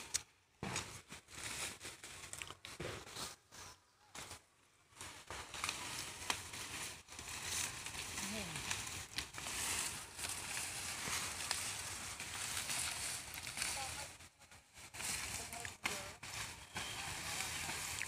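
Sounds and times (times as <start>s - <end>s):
dry cane leaves rustling: 0.0s - 18.0s
cane stalks snapping: 5.0s - 13.9s.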